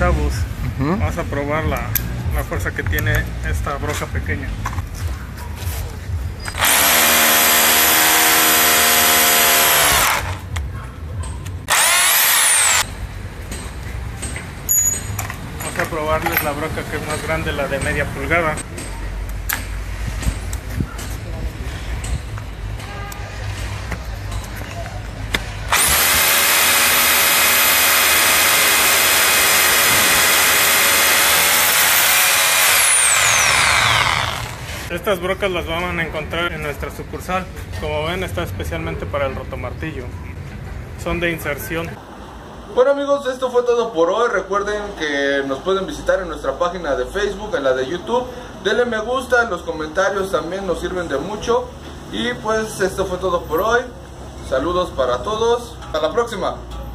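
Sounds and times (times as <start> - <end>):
rotary hammer drilling concrete: 6.5 - 10.5, 11.6 - 12.9, 25.7 - 34.9.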